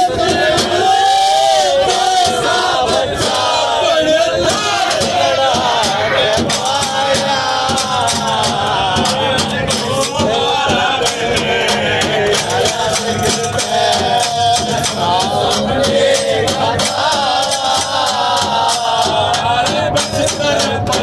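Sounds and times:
men singing unaccompanied: 0.0s - 21.0s
hand-clapping: 4.5s - 21.0s.

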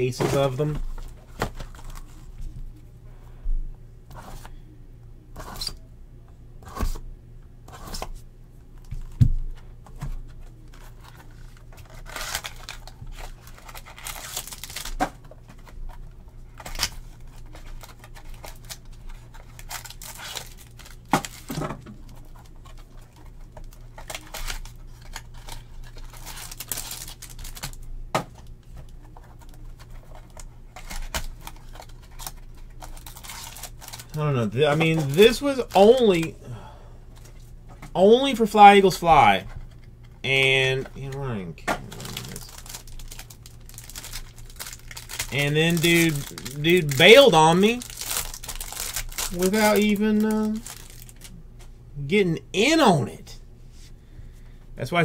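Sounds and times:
foil packs tearing and crinkling: 10.5s - 36.3s, 41.8s - 51.3s.

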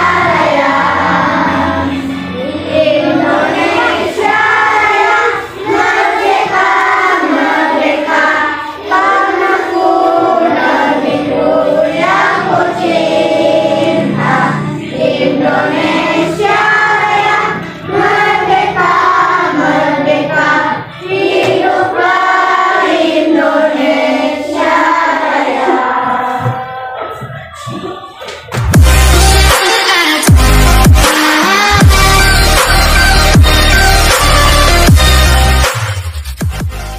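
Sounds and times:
children singing in unison: 0.0s - 28.2s.

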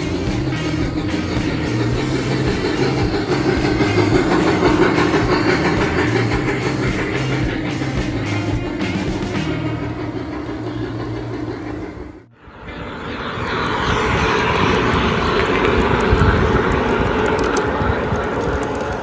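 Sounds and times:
model locomotive drone: 0.0s - 19.0s
train wheel noise: 0.0s - 19.0s.

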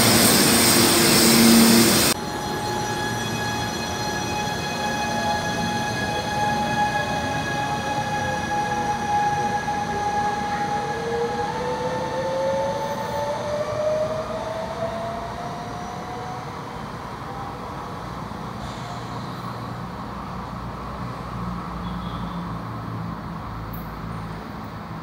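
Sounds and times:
train motor whine: 0.0s - 13.2s
low steady train rumble: 0.0s - 25.0s.

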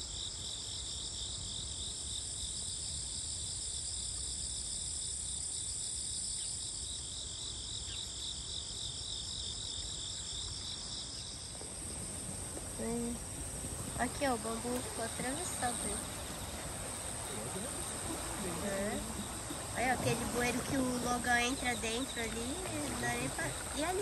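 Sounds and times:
crickets trilling: 0.0s - 24.0s
creek rushing: 11.5s - 24.0s.

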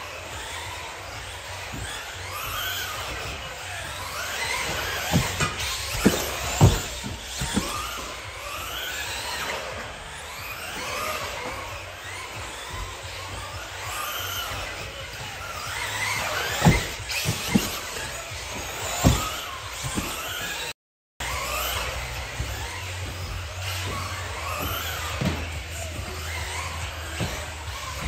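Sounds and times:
electric toy car motor whining: 0.0s - 28.0s
toy car landing thumps: 1.7s - 9.5s, 12.5s - 20.7s.

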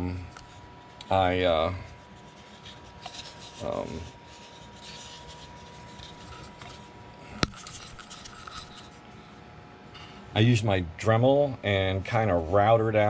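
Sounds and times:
rubbing and scratching on wood: 0.4s - 9.0s.

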